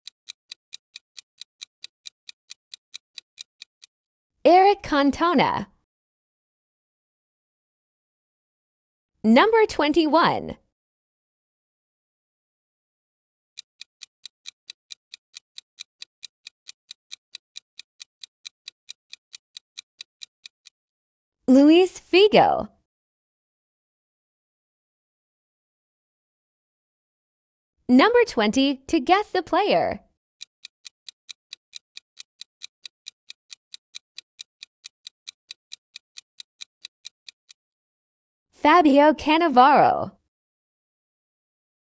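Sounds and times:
clock ticking: 0.0 - 3.9, 13.6 - 20.8, 30.4 - 37.6.

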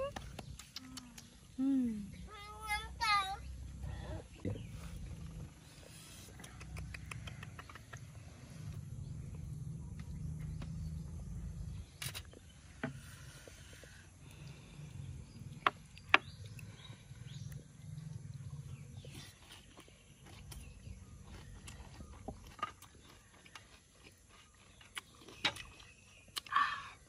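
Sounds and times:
mouth clicks and smacks: 0.0 - 1.5, 6.2 - 8.2
chewing noises: 4.3 - 12.6, 13.4 - 26.8.

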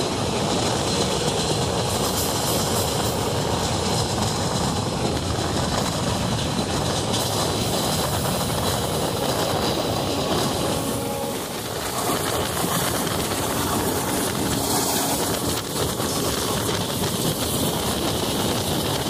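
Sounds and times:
train wheels on rails: 0.0 - 19.0
wind rushing: 1.6 - 19.0.

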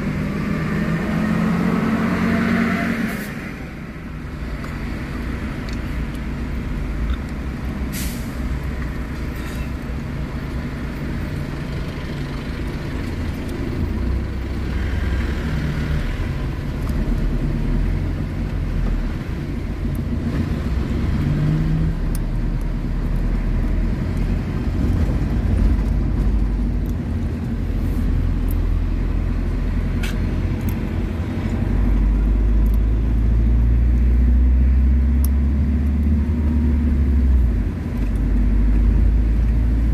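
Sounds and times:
car engine and road noise: 0.0 - 39.9.

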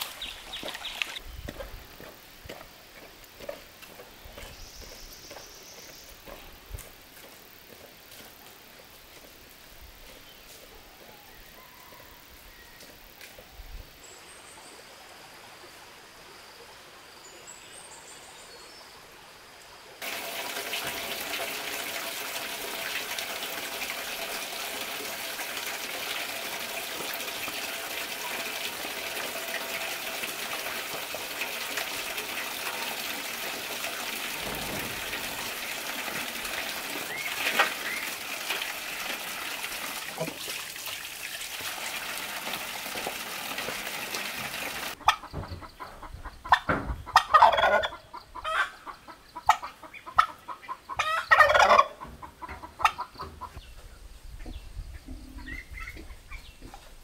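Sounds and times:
water running into metal basin: 20.0 - 45.0
turkey gobbling: 45.0 - 53.6.

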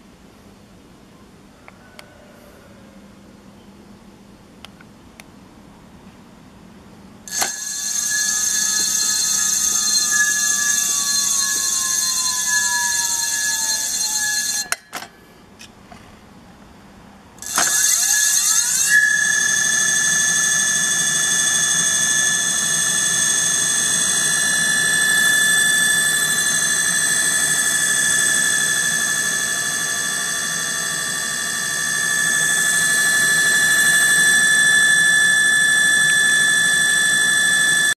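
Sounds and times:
electric motor whine: 7.3 - 14.8, 17.4 - 37.9.

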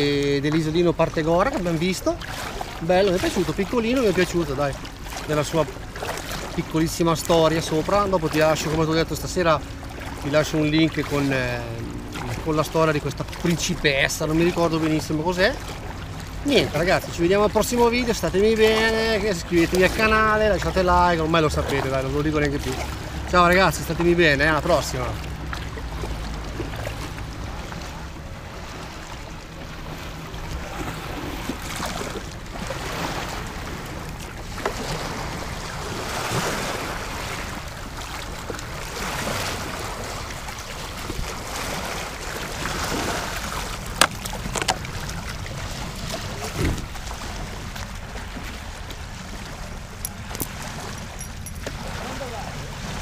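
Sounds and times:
water splashing against kayak: 0.0 - 53.0
dull thump: 46.5 - 47.0.

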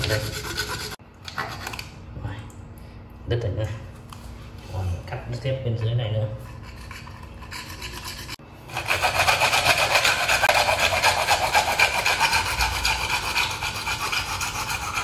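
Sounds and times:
hacksaw sawing through plastic pipe: 0.0 - 1.0, 6.8 - 15.0.

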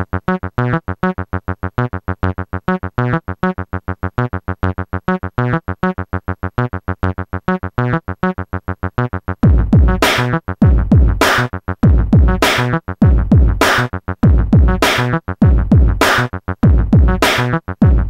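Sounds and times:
staccato synthesizer riff: 9.0 - 18.0
deep kick drum: 9.4 - 18.0.

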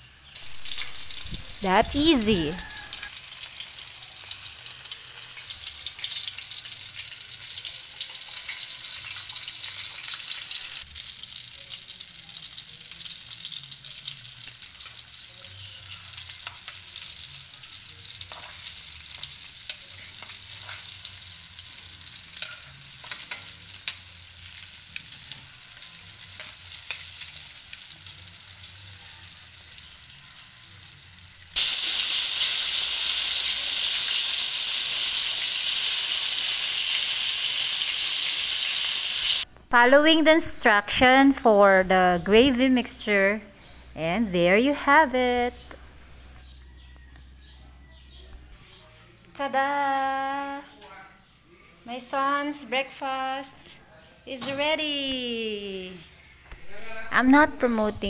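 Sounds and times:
chicken deep-frying in oil: 0.0 - 39.5.

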